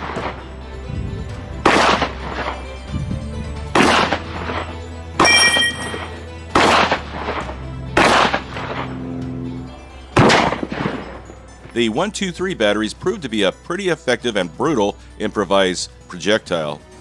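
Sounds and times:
background music: 0:00.0 - 0:17.0
loud shotgun shots: 0:01.6 - 0:02.6, 0:03.7 - 0:04.3, 0:05.2 - 0:08.9, 0:10.2 - 0:11.1.

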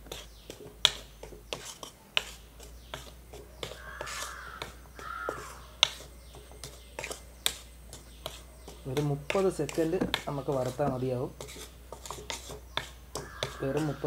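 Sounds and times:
wooden spatula scraping a pan: 0:00.0 - 0:14.0
crow cawing: 0:03.8 - 0:05.7, 0:13.2 - 0:14.0.

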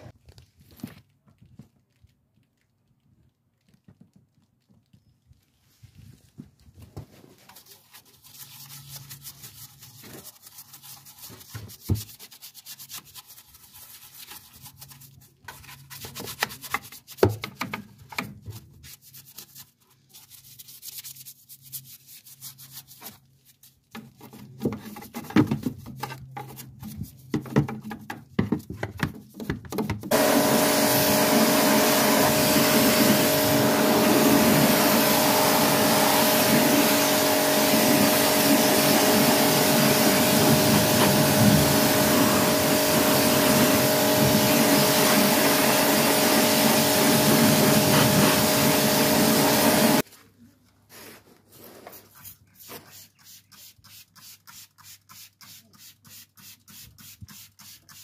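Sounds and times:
crackling and rubbing: 0:00.1 - 0:17.2
pressure washer motor whine: 0:30.1 - 0:50.0
water jet hissing: 0:30.1 - 0:50.0.

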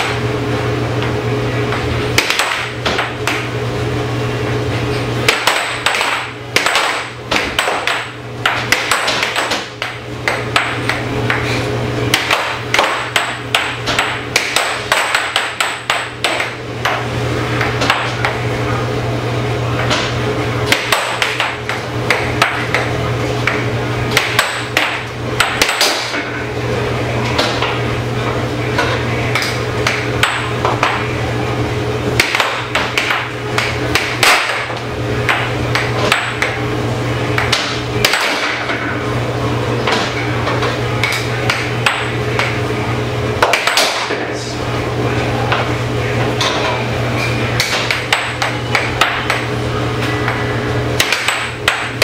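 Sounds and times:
air blower hum: 0:00.0 - 0:52.0
air hockey puck clacking: 0:02.2 - 0:03.5, 0:05.2 - 0:18.4, 0:19.8 - 0:20.1, 0:20.7 - 0:26.4, 0:27.2 - 0:27.8, 0:28.7 - 0:31.1, 0:32.2 - 0:36.6, 0:37.3 - 0:39.0, 0:39.8 - 0:42.6, 0:43.4 - 0:44.2, 0:47.6 - 0:50.4, 0:51.0 - 0:52.0.

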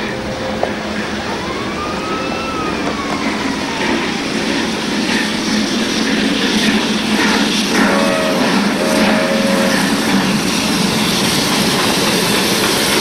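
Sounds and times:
steam train rumbling past: 0:00.0 - 0:13.0
thin high whine: 0:07.7 - 0:10.8.

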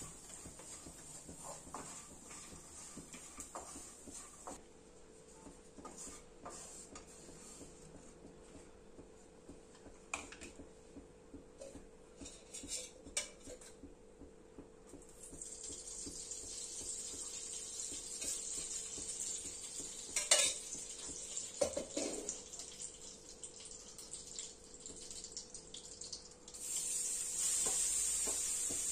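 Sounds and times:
spoon clinking and scraping in pan: 0:20.1 - 0:20.8
steady hiss: 0:26.6 - 0:28.9.

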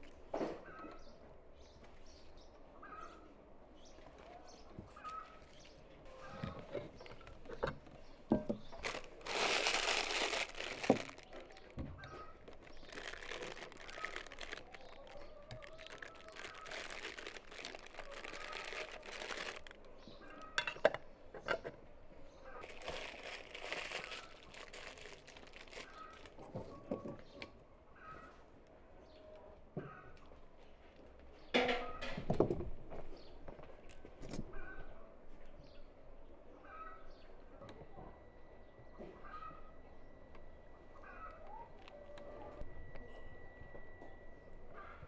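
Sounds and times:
birds chirping: 0:00.6 - 0:28.4
plastic bag crinkling: 0:08.7 - 0:20.4, 0:22.6 - 0:26.6.

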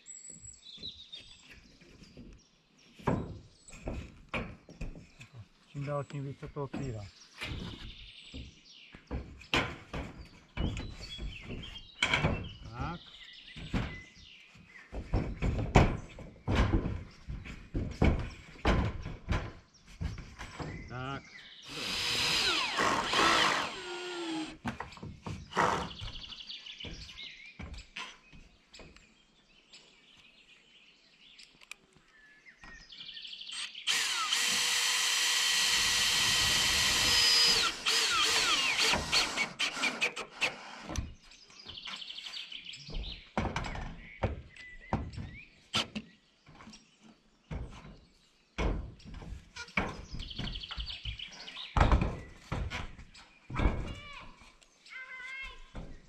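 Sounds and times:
cordless drill driving screws: 0:21.6 - 0:24.6, 0:33.5 - 0:41.0.

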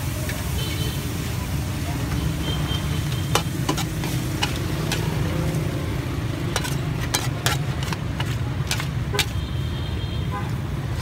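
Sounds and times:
low traffic rumble: 0:00.0 - 0:11.0
metal ladle clanking on wok: 0:03.1 - 0:05.3, 0:06.5 - 0:09.4.

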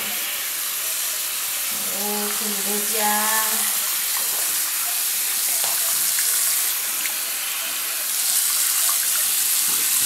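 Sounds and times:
tap water splashing into basin: 0:04.0 - 0:07.2, 0:08.2 - 0:10.0.

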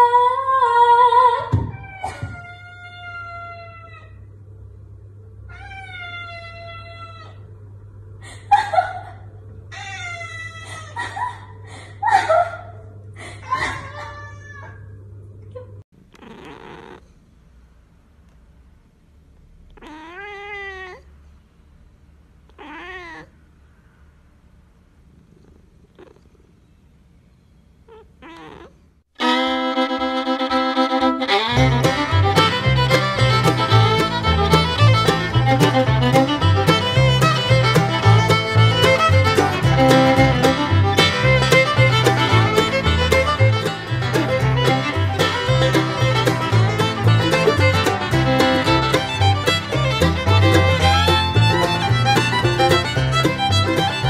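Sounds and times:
cat meowing: 0:01.6 - 0:04.2, 0:05.5 - 0:07.4, 0:09.7 - 0:10.9, 0:13.5 - 0:15.0, 0:16.1 - 0:17.1, 0:19.7 - 0:21.1, 0:22.5 - 0:23.4, 0:27.8 - 0:41.7
cat meowing softly: 0:13.7 - 0:14.9, 0:16.1 - 0:17.1, 0:19.7 - 0:21.1, 0:22.5 - 0:23.4, 0:27.8 - 0:28.9
fiddle music: 0:29.2 - 0:54.0.

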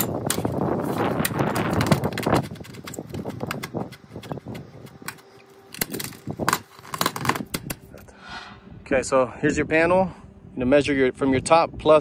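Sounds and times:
rush of noise: 0:07.9 - 0:09.5.

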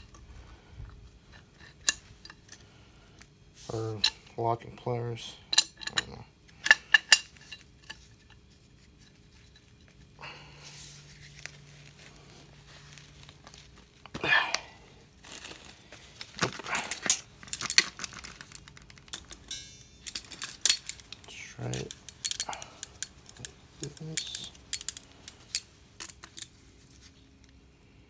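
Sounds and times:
metal tools clinking and scraping: 0:01.3 - 0:02.8, 0:03.7 - 0:10.0, 0:16.3 - 0:27.2
rustle of handling: 0:07.3 - 0:27.7.

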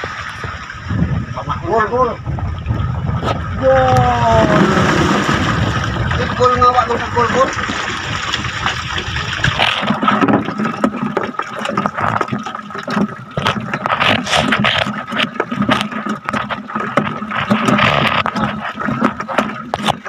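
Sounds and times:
water splashes: 0:00.0 - 0:20.0
fishing net and tubs handled: 0:06.0 - 0:20.0.

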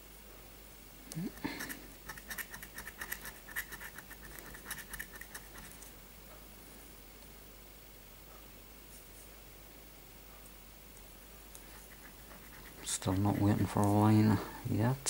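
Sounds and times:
coin scratching scratch card: 0:01.3 - 0:05.9, 0:11.7 - 0:14.1.

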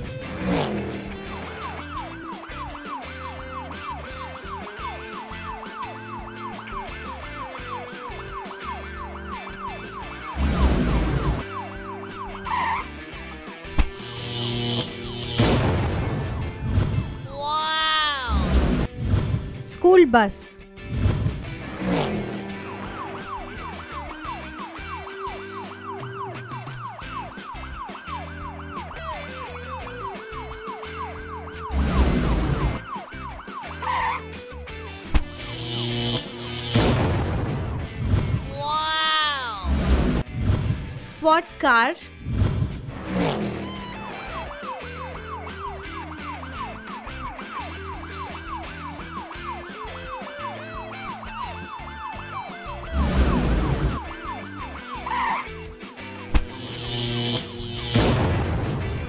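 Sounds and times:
background music: 0:00.0 - 0:59.0
cartoon police siren wailing: 0:01.1 - 0:13.1, 0:17.2 - 0:18.6, 0:22.2 - 0:34.5, 0:38.5 - 0:39.8, 0:43.6 - 0:55.8.

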